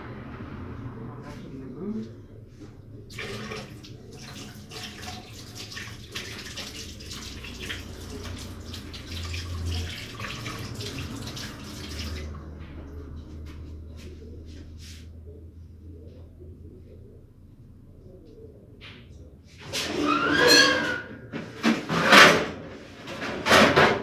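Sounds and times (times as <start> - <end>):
tap water splashing in sink: 3.1 - 12.5.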